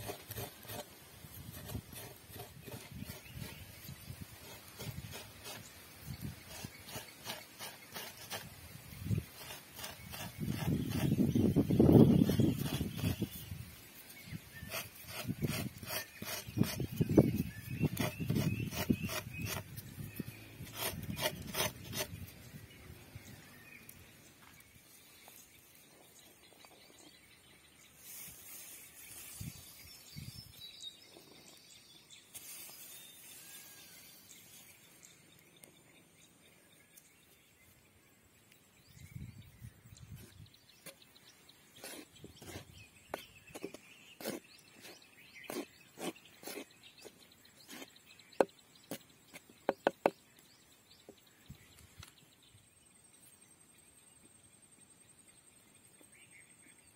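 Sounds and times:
coconut rasping on wooden stick: 0.0 - 13.5, 14.5 - 22.3, 41.8 - 50.2
spatula scraping clay bowl: 0.0 - 13.5, 14.5 - 22.3, 41.8 - 50.1
faint outdoor background: 0.0 - 56.9.

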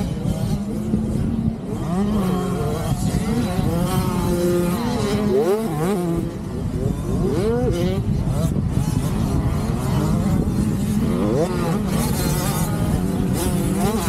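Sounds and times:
mini dirt bike engines revving: 0.0 - 14.0.

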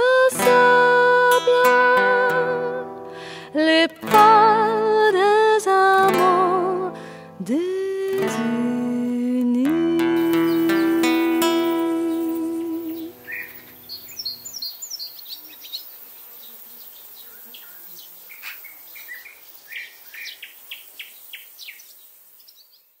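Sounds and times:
birds chirping and calling: 10.2 - 23.0.

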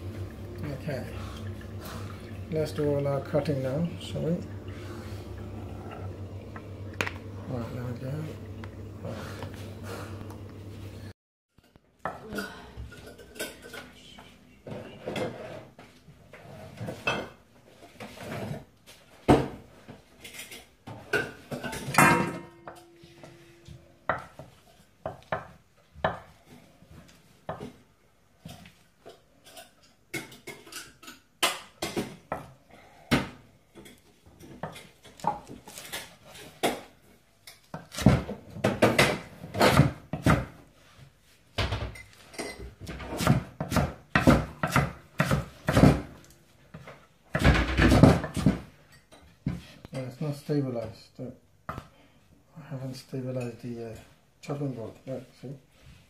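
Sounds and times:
knife chopping lettuce on wood: 37.7 - 38.4, 39.0 - 40.6, 43.1 - 46.1.

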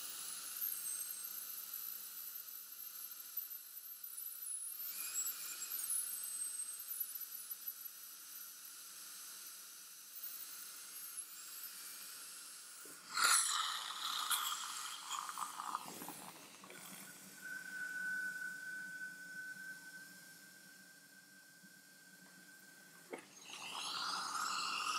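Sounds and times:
dental drill whine: 0.0 - 24.9
water spray hiss: 12.9 - 17.0, 23.4 - 24.9
steady mid-pitched tone: 13.8 - 23.4.

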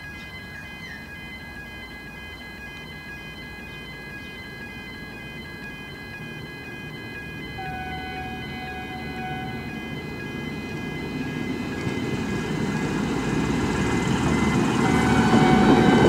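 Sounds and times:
ringing warning signal: 0.0 - 16.0
train rumble: 6.8 - 16.0.

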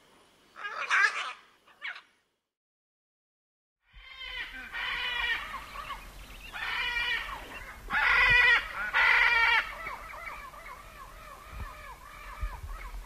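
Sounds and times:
parrot squawking: 0.6 - 2.1.

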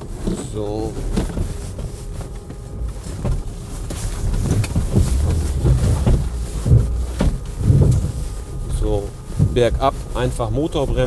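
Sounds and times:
car engine rumbling: 0.0 - 11.0
knocks from bumps: 2.9 - 8.3.

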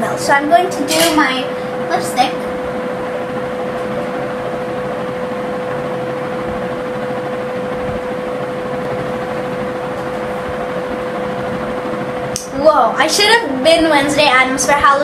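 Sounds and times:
machine hum with hiss: 0.0 - 15.0.

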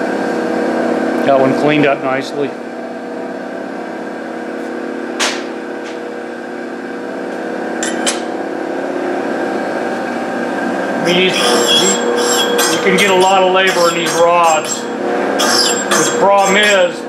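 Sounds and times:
electric motor humming: 6.8 - 17.0.

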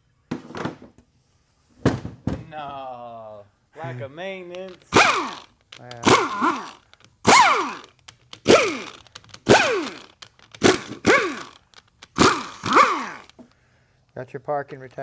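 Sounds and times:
power ratchet whining: 4.6 - 13.6.

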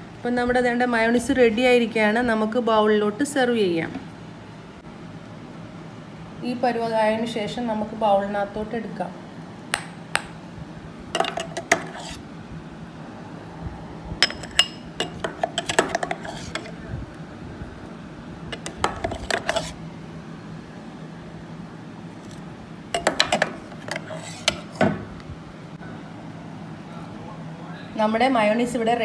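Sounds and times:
spatula scraping and tapping jar: 11.2 - 12.2, 14.2 - 16.8, 18.5 - 19.8, 23.0 - 24.8.

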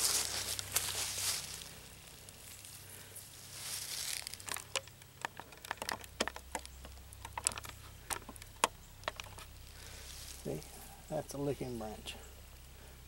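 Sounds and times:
dry brush rustling: 0.0 - 4.9, 9.2 - 12.1
twig clicking and snapping: 3.7 - 10.4.

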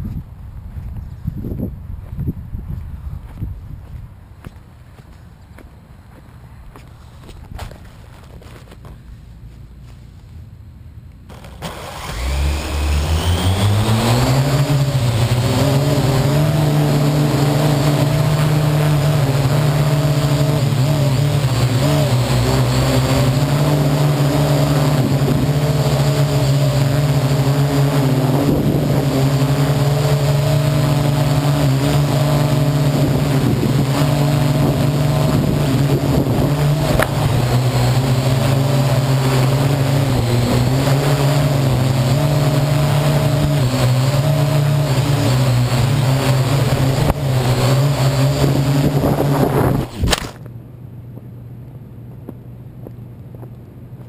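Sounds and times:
drone propellers humming: 11.0 - 51.0.

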